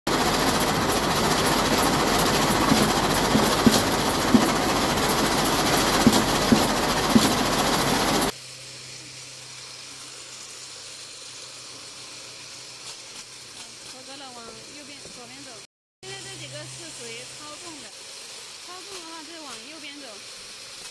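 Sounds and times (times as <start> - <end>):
steady low hum: 0.1 - 10.7
conveyor machinery noise: 0.1 - 17.9
sharp knocks: 2.5 - 8.3.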